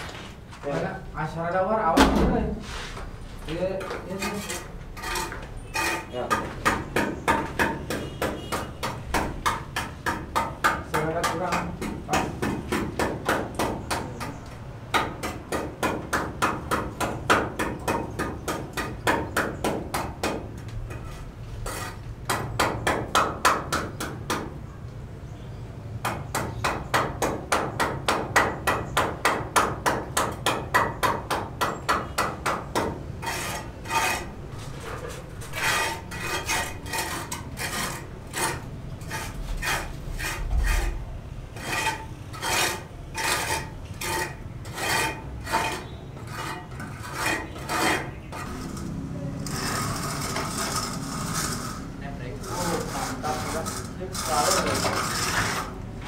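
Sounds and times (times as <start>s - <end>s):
tool scraping brick: 2.6s - 24.5s, 26.1s - 56.0s
hand tool tapping on brick: 5.3s - 21.1s.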